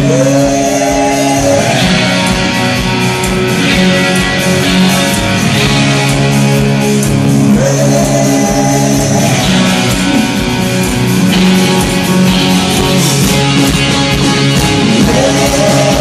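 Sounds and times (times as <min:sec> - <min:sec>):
electric guitar: 0:00.0 - 0:16.0
loud live rock band: 0:00.0 - 0:16.0.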